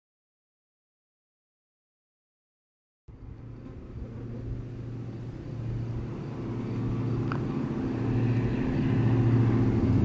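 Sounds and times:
diesel locomotive engine drone: 0:03.1 - 0:10.0.

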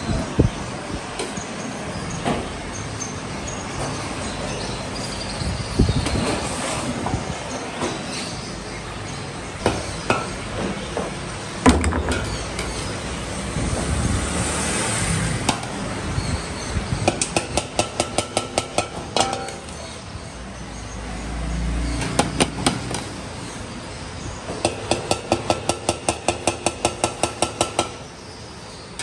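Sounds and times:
metal ladle rapping on steel tray: 0:17.1 - 0:19.8.

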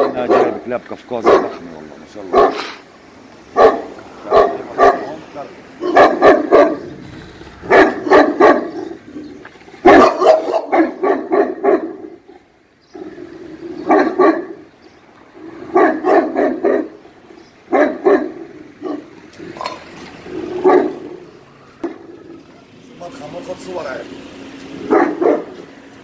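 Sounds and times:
dog barking: 0:00.0 - 0:01.6, 0:02.3 - 0:02.8, 0:03.5 - 0:05.2, 0:05.8 - 0:07.0, 0:07.6 - 0:09.0, 0:09.8 - 0:12.2, 0:13.8 - 0:14.7, 0:15.7 - 0:17.0, 0:17.7 - 0:19.8, 0:20.6 - 0:21.2, 0:24.8 - 0:25.6.

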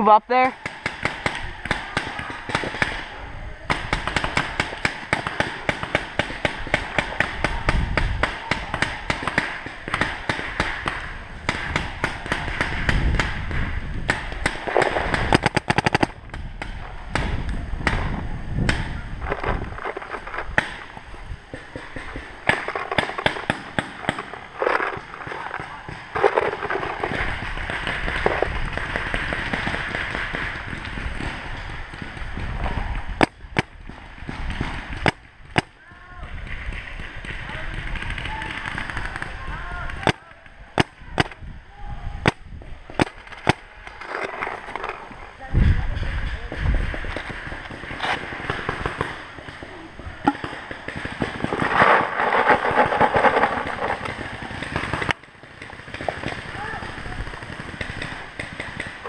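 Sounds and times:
faint rapid pops and hiss: 0:00.4 - 0:03.1, 0:03.7 - 0:41.5, 0:42.2 - 0:59.0
paintball marker shots: 0:21.5 - 0:35.7, 0:46.5 - 0:59.0
paintballs rattling into hopper: 0:51.4 - 0:54.4
gear rustling: 0:51.5 - 0:55.1.

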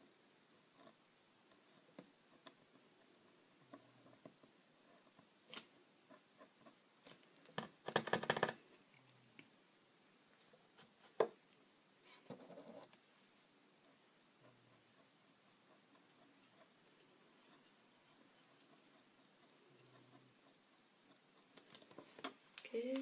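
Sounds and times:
marker tapping and scratching: 0:00.6 - 0:08.6, 0:10.7 - 0:11.4, 0:13.8 - 0:22.4.

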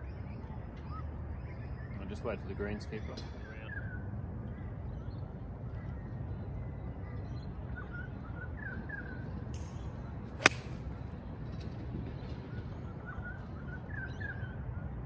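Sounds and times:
steady outdoor rumble: 0:00.0 - 0:15.0
golf club striking ball: 0:10.4 - 0:10.9.

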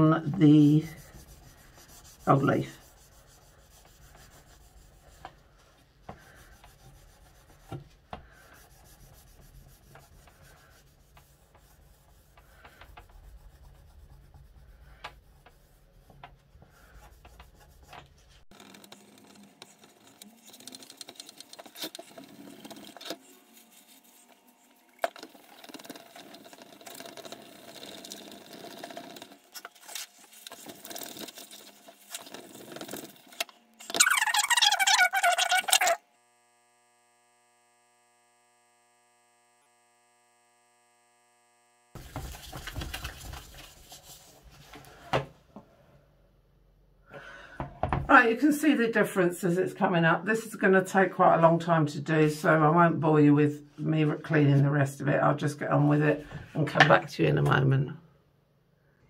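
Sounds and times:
scratchy scrubbing: 0:00.0 - 0:36.0, 0:41.9 - 0:44.8.

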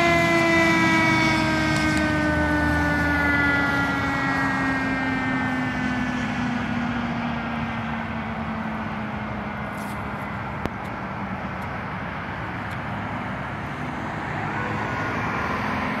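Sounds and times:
car engine and tyres: 0:00.0 - 0:16.0
fire engine engine hum: 0:00.0 - 0:16.0.

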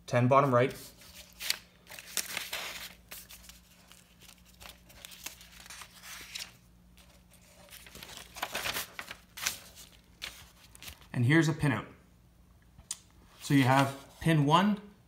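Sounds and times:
paper sheets rustling: 0:00.7 - 0:11.1, 0:13.4 - 0:14.2.

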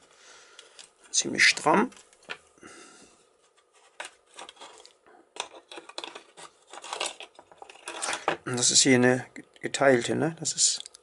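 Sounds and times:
metal lock parts clicking and scraping: 0:04.3 - 0:08.8.

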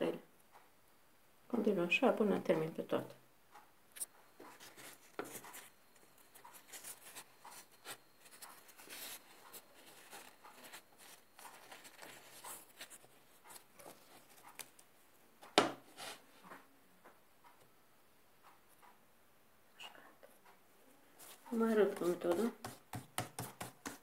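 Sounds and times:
pastry sheets rustling: 0:04.0 - 0:14.9, 0:21.1 - 0:24.0
knock: 0:15.6 - 0:15.8.

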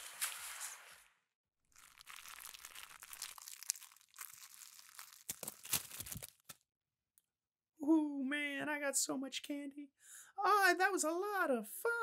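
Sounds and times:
candy wrappers crinkling: 0:01.7 - 0:06.6.

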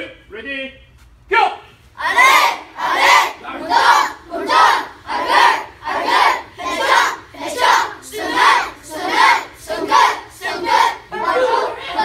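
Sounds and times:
children shouting in unison: 0:11.1 - 0:12.0.

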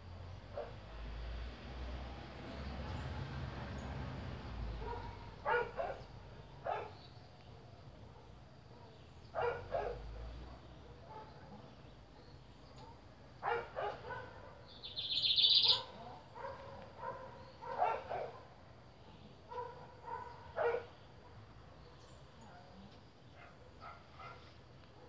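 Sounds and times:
high-pitched chirp: 0:14.8 - 0:15.8
animal calls: 0:14.9 - 0:16.6.

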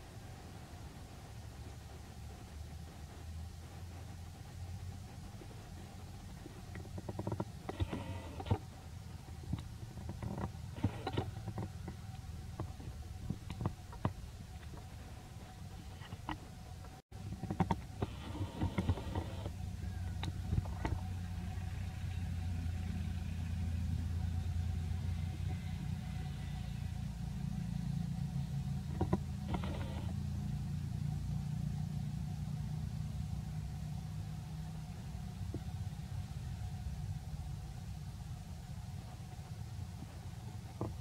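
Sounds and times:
vehicle engine rumbling: 0:00.0 - 0:41.0.

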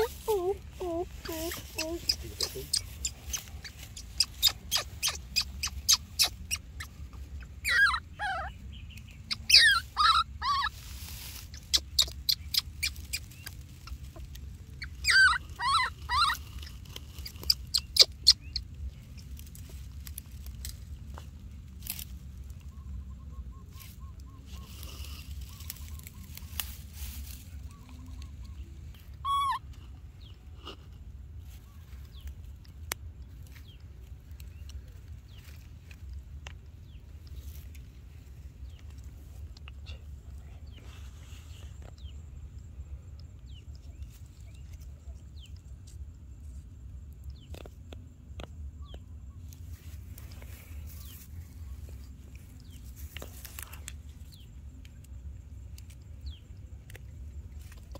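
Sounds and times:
baby monkey crying: 0:00.0 - 0:08.6, 0:09.3 - 0:18.7, 0:29.1 - 0:29.8.

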